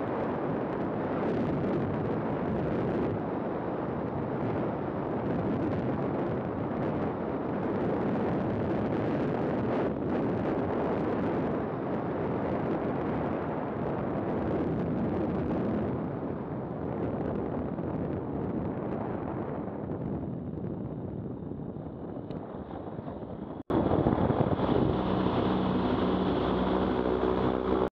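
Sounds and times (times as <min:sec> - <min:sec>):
wind buffeting microphone: 0:00.0 - 0:27.9
microlight rolling on runway rumble: 0:17.0 - 0:27.9.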